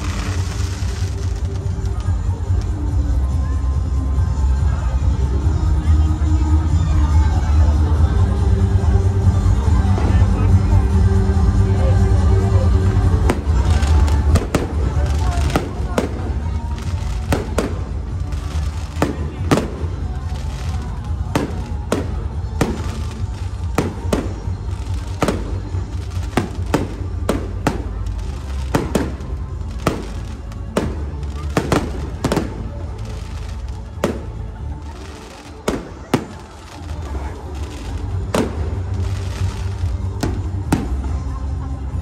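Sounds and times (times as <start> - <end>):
fireworks bangs: 0.0 - 2.0, 13.2 - 41.2
music playing: 0.0 - 42.0.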